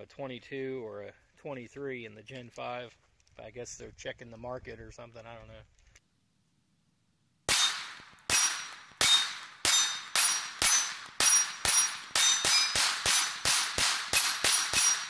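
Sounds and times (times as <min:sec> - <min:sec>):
pistol shots: 0:07.5 - 0:15.0
steel target plates ringing: 0:07.5 - 0:15.0.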